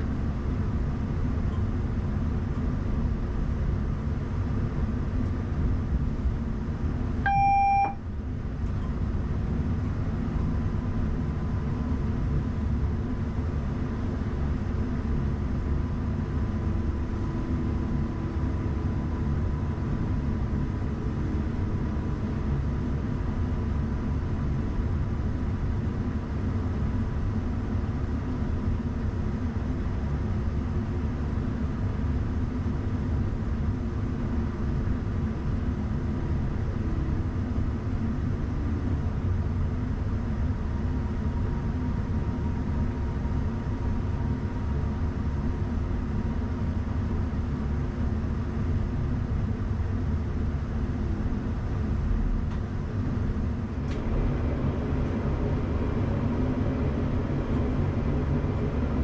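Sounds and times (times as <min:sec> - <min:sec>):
short electronic beep: 0:07.3 - 0:08.0.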